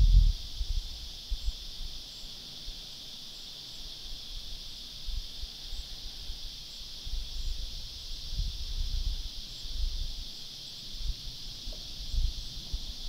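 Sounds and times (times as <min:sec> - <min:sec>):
wind rumble on microphone: 0:00.0 - 0:01.8, 0:07.0 - 0:10.2, 0:11.0 - 0:13.0
cicada chorus buzzing: 0:00.0 - 0:13.0.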